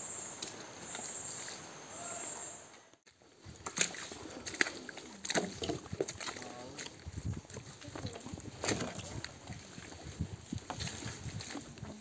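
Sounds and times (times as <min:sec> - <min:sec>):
footsteps on muddy trail: 0:03.0 - 0:12.0.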